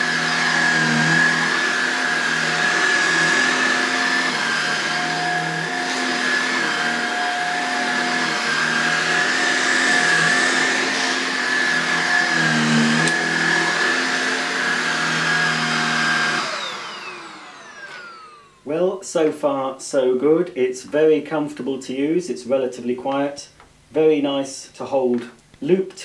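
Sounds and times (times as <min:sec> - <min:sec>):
vacuum motor winding down: 0:00.0 - 0:18.7
vacuum cleaner running: 0:00.0 - 0:18.8.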